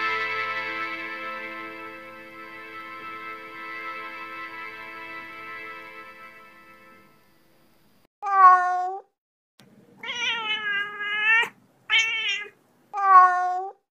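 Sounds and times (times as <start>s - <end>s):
cat meowing: 8.2s - 9.1s, 10.0s - 13.8s.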